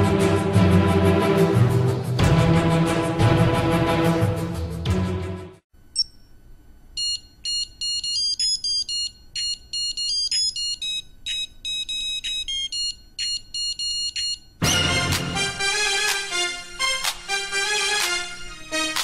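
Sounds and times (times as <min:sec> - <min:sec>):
fuller music track: 0:00.0 - 0:05.6, 0:14.6 - 0:19.0.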